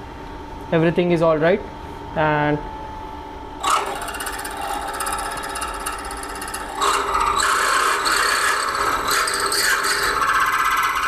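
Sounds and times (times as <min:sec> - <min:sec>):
drill bit scraping squeal: 0:03.6 - 0:11.0
milling machine spindle running: 0:03.6 - 0:11.0.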